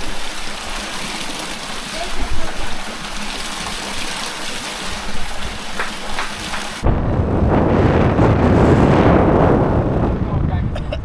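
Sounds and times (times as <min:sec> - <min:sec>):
spring water gushing from spouts: 0:00.0 - 0:06.9.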